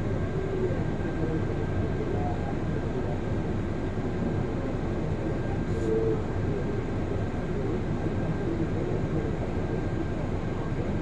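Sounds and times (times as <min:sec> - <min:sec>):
bus engine low rumble: 0:00.0 - 0:11.0.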